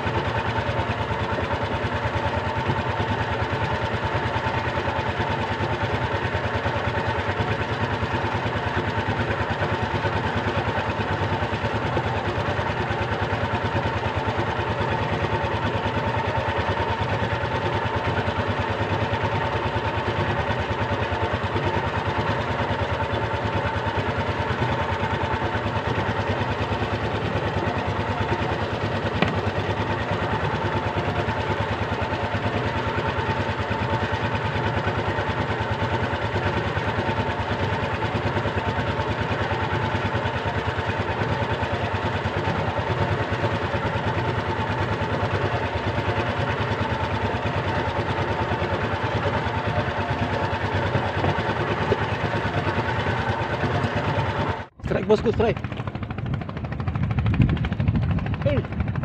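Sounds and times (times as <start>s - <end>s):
boat engine running steadily: 0.0s - 59.0s.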